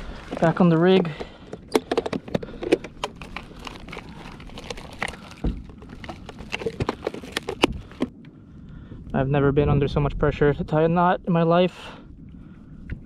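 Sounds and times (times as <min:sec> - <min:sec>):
plastic packets crinkling: 0:00.3 - 0:08.0.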